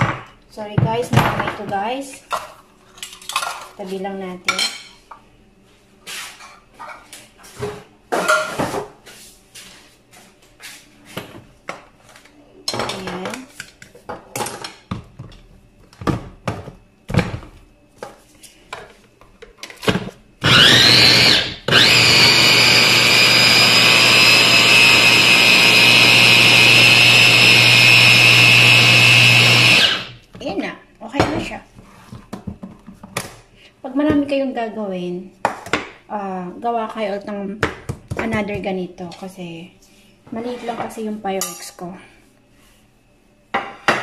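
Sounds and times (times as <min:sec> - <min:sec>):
chopper motor whining: 0:20.4 - 0:30.1.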